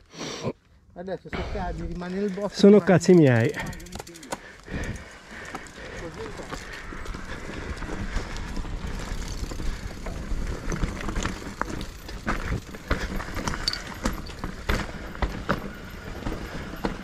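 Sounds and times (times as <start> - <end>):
bike rattling over stones: 1.0 - 17.0.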